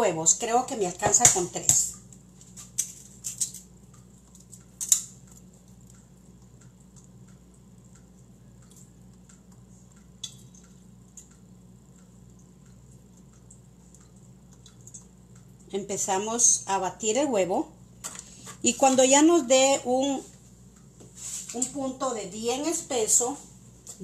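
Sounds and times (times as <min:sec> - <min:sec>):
low steady hum: 0:00.0 - 0:24.0
eggs cracking on a steel bowl: 0:00.9 - 0:07.4.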